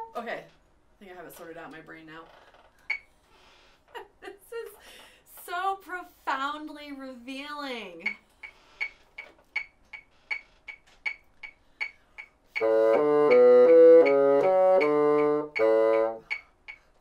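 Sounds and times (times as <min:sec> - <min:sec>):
metronome clicking: 0:08.0 - 0:17.0
bassoon playing: 0:12.5 - 0:16.4.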